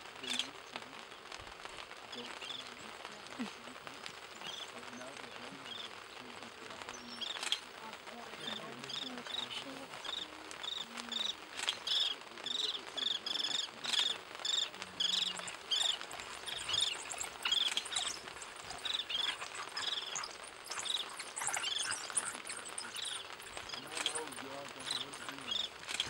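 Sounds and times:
insect chirping: 6.9s - 26.0s.

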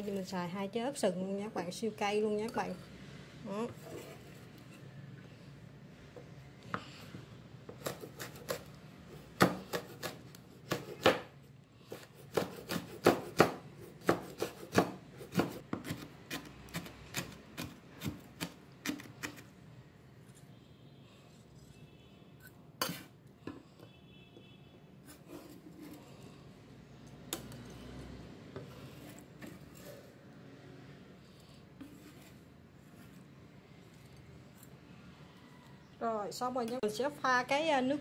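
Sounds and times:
knife chopping on cutting board: 7.7s - 8.7s, 9.4s - 11.3s, 11.9s - 19.4s.

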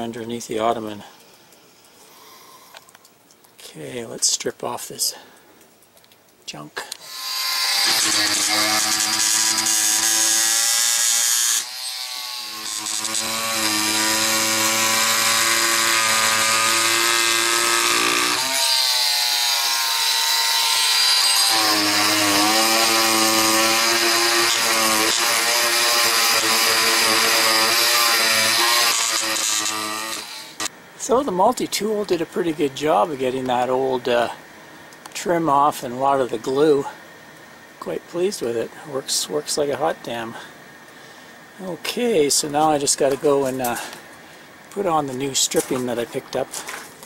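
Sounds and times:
oscillating multi-tool scraping: 7.0s - 30.7s.

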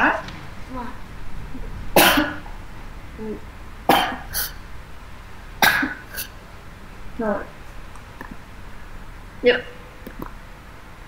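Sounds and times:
woman coughing: 2.0s - 2.4s, 3.9s - 4.5s, 5.6s - 6.3s.

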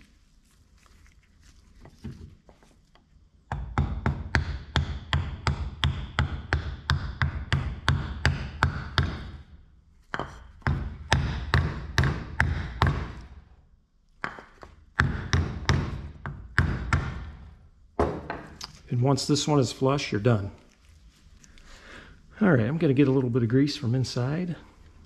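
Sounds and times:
hammer knocking on wooden block: 3.5s - 9.4s, 10.1s - 13.2s, 14.2s - 17.3s.

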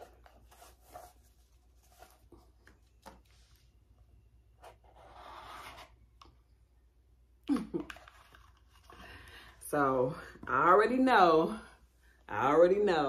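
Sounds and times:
ribbon and box rustling: 0.0s - 3.4s.

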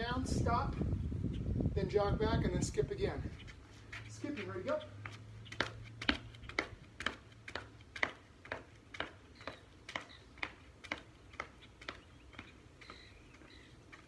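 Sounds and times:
sneaker footfalls on concrete: 3.2s - 14.0s.

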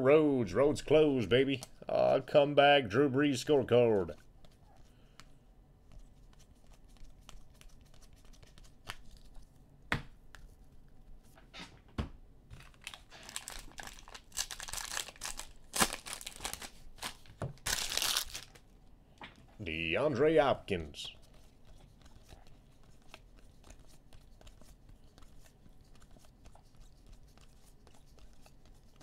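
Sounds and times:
foil card pack crinkling and tearing: 12.6s - 18.6s.

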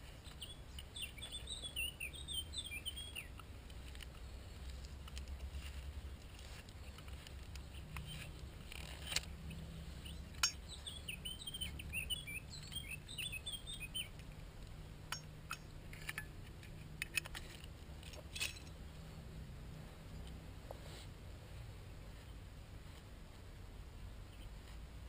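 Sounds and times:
bird chirping: 0.0s - 3.5s, 6.4s - 14.4s.

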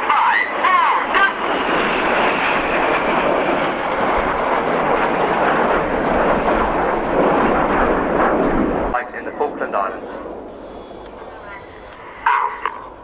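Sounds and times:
jets flying past: 0.0s - 13.0s.

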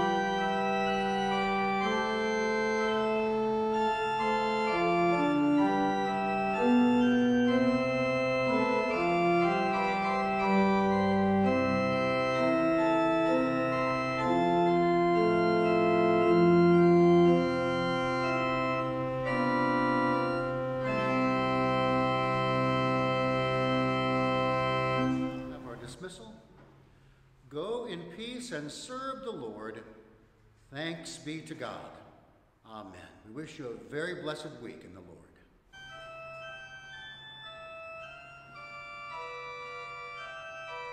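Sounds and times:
church organ playing chords: 0.0s - 26.4s, 35.7s - 40.9s.

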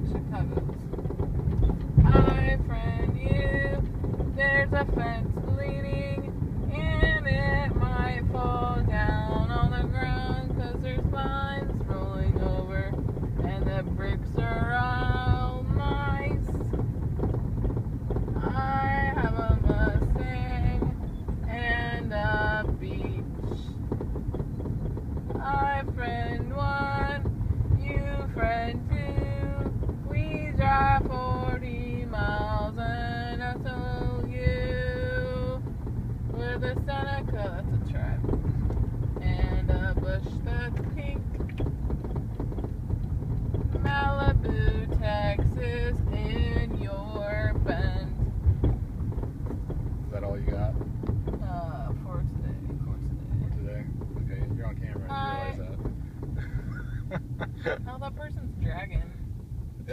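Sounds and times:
car road noise rumble: 0.0s - 59.9s
woman singing: 2.0s - 16.6s, 18.4s - 23.7s, 25.4s - 35.6s, 36.4s - 38.2s, 39.2s - 41.2s, 43.8s - 48.2s.

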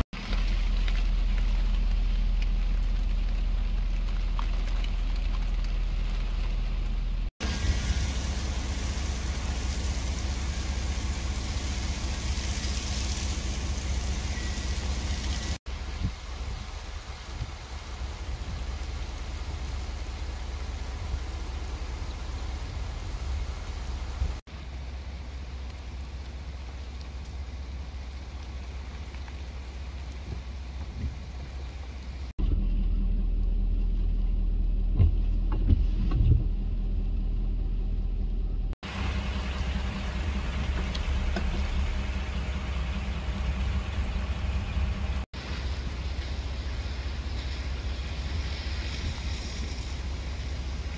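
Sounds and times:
freezing rain hissing on ice: 0.0s - 32.4s, 38.8s - 50.9s
car engine idling: 0.0s - 35.7s, 36.4s - 50.9s
low rumble: 0.0s - 50.9s.

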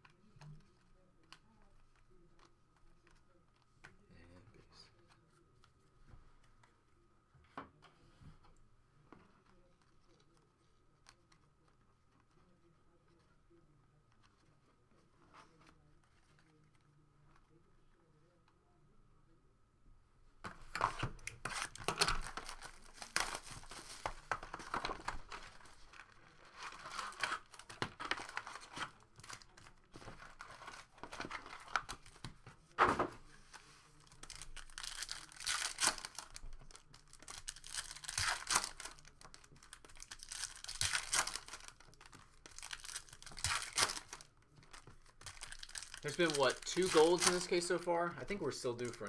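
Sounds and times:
foil packs tearing and crinkling: 21.4s - 32.2s, 34.0s - 47.8s.

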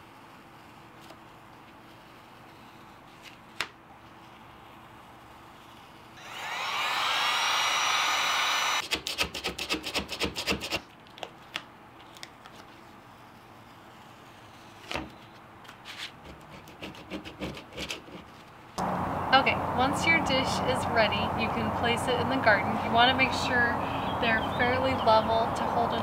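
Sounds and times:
heat gun fan whining: 6.2s - 9.0s.

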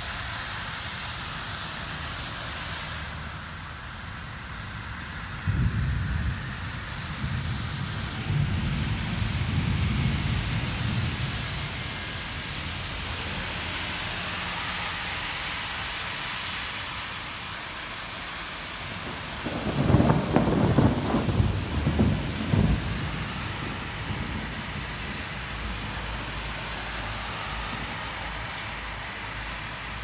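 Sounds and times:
steady rain: 0.0s - 30.0s
thunder rumbling: 5.4s - 13.5s, 18.8s - 28.9s.

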